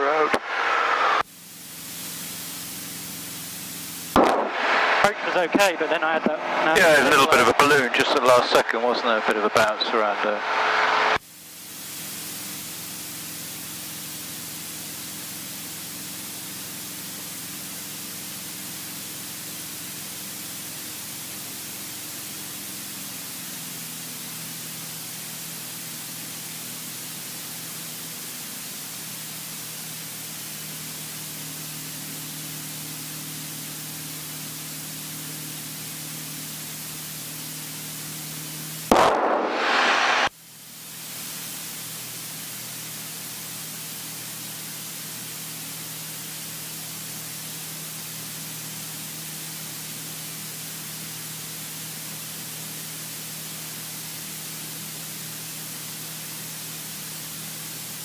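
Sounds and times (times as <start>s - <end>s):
aircraft piston engine drone: 0.0s - 58.0s
cockpit hiss: 0.0s - 58.0s
loud burst: 3.8s - 11.2s, 38.7s - 40.4s.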